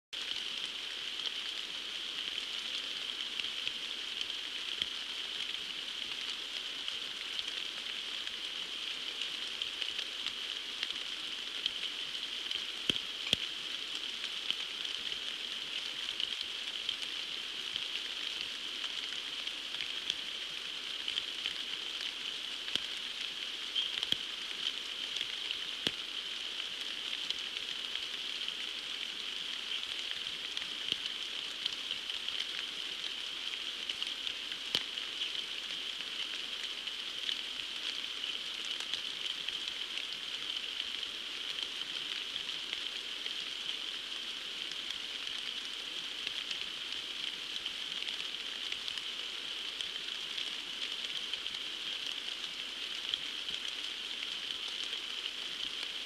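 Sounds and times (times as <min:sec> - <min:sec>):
heavy rain on a pond: 0:00.1 - 0:56.0.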